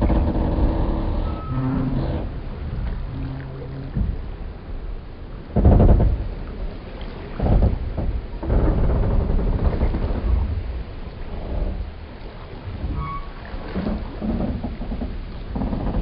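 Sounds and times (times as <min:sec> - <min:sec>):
wooden boats and pier creaking: 0:00.0 - 0:16.0
lapping water: 0:02.4 - 0:04.2.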